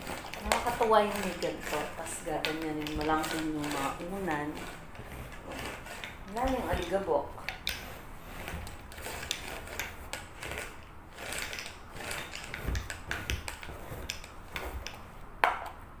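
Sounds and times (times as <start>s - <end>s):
lint roller rattling on fabric: 0.0s - 15.4s.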